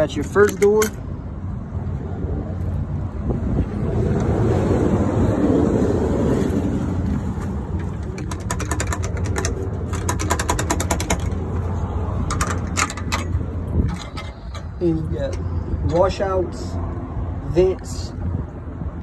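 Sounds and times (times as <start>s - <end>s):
rapid mechanical clicking: 7.8s - 11.5s.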